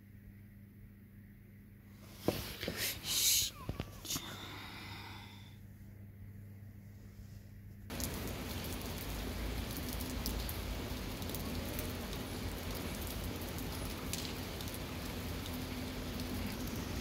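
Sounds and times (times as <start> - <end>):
rain on wet stone paving: 7.9 - 17.0.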